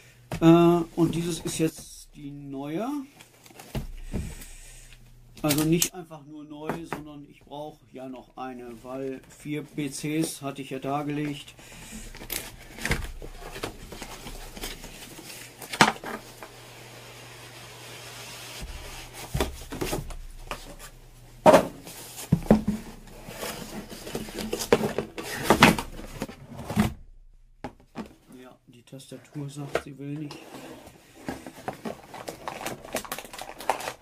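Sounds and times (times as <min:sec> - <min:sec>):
cardboard sliding and rubbing: 0:12.5 - 0:21.0, 0:21.8 - 0:27.0.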